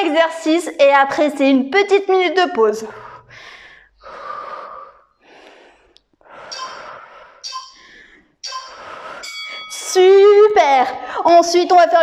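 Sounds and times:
woman breathing hard: 3.0 - 9.9.

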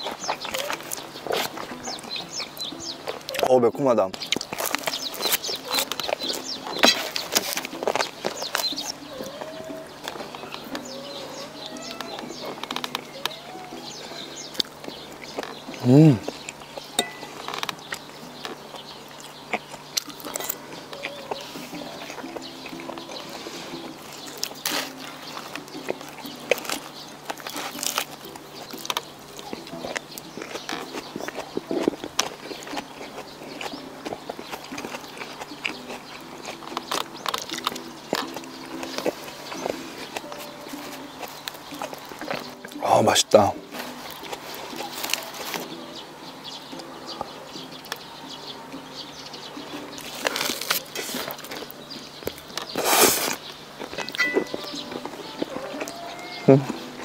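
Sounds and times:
faint background music: 0.0 - 57.0
chewing with wet mouth smacks: 4.1 - 42.8.

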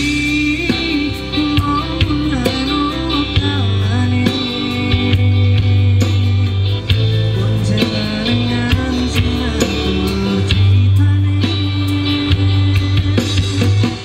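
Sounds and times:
bass-heavy song over speaker: 0.0 - 14.0.

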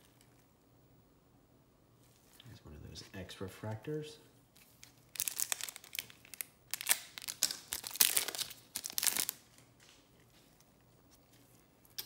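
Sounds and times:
foil wrapper crinkling and tearing: 4.6 - 9.7.

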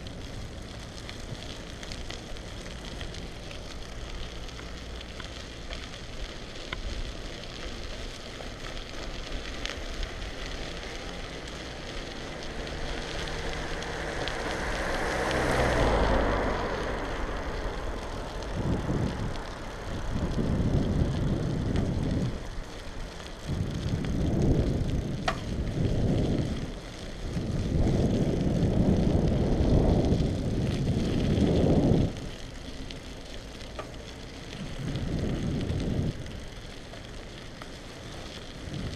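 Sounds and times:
bicycle tyre hiss and rattle: 0.0 - 38.9
wind on microphone: 12.4 - 22.6, 23.3 - 32.5, 34.4 - 36.6, 38.4 - 38.9.

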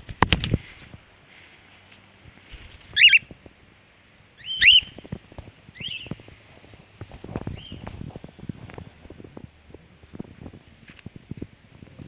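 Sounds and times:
cockatiels whistling calls: 3.0 - 3.3, 4.4 - 5.0, 5.8 - 6.1.

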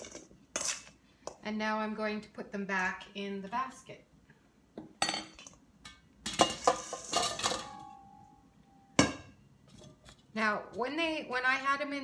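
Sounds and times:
metal spoon and bowl clattering: 5.0 - 8.0
bowl ringing: 7.4 - 9.4.

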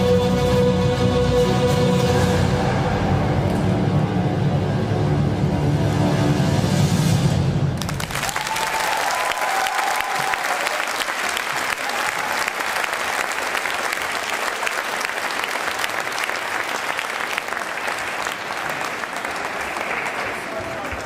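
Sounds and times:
performance music: 0.0 - 21.0
audience applauding: 7.8 - 21.0.

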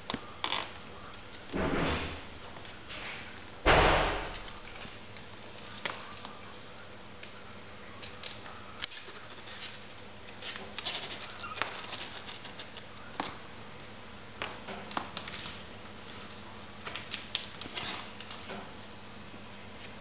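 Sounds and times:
kittens scuffling on blanket: 8.8 - 12.9.

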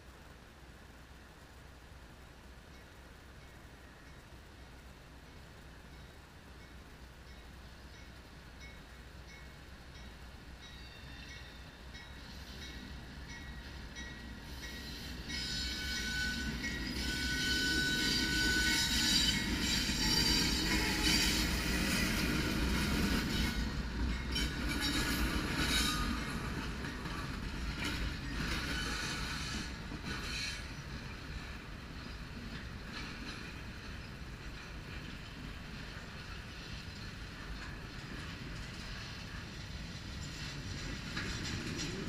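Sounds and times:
diesel locomotives passing: 0.0 - 42.0
rumble of train wheels: 0.0 - 42.0
thin wheel squeal: 14.6 - 22.1, 24.3 - 26.4, 28.6 - 30.8
wheel clicks on rail joints: 23.7 - 42.0.

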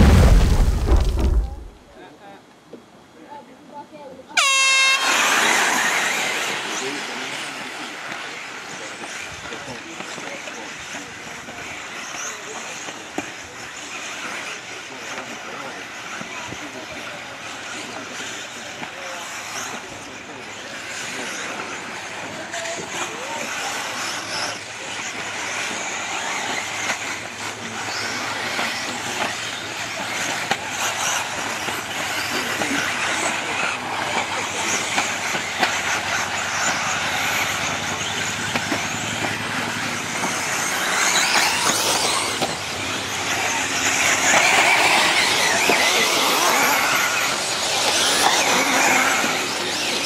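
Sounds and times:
tyres running over dirt: 0.0 - 1.8, 21.1 - 50.0
rc car motors whirring: 4.4 - 50.0.

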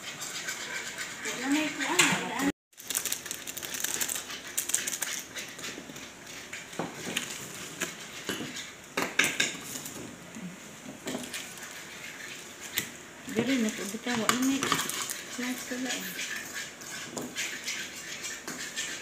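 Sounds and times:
plastic sachets crinkling: 2.7 - 5.2.

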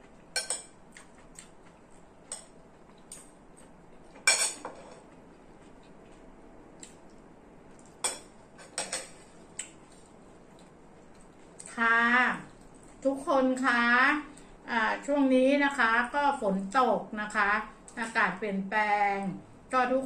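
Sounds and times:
cutlery clinking on ceramic plate: 4.2 - 5.0.

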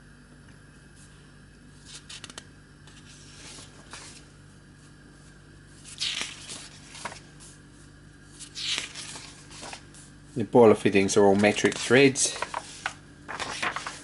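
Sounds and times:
book page turning: 1.8 - 4.3, 5.8 - 7.6, 8.3 - 10.1, 11.0 - 14.0.

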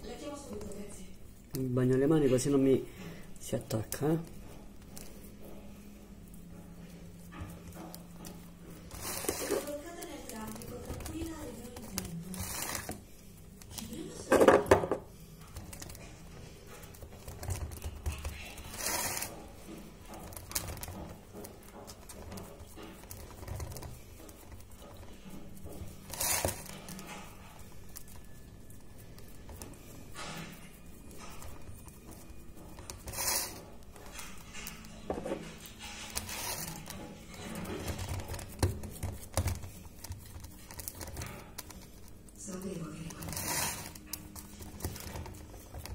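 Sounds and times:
hands patting wet dough: 0.0 - 45.9.

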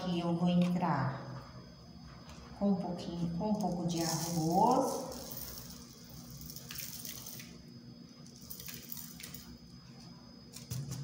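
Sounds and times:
grains ticking against glass: 4.0 - 7.6
rice grains trickling: 4.0 - 7.6.

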